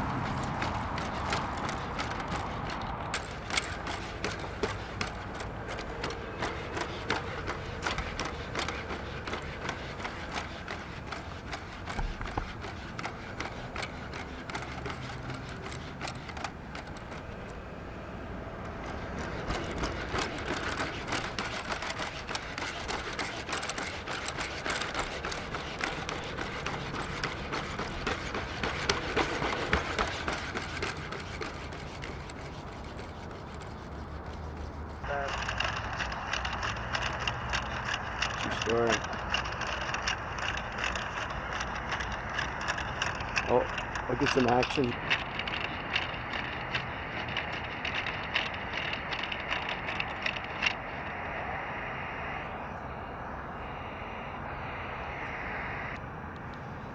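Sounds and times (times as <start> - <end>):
robot dog feet tapping: 0.0 - 17.6, 18.6 - 38.4
steady background hum: 0.0 - 56.9.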